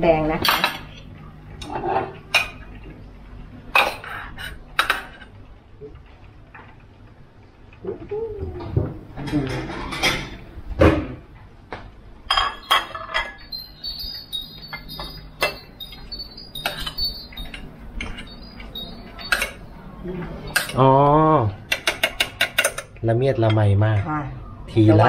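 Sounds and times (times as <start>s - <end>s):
utensils clinking on plates: 0.4s - 2.8s, 3.7s - 5.3s, 9.1s - 11.1s, 12.3s - 23.6s.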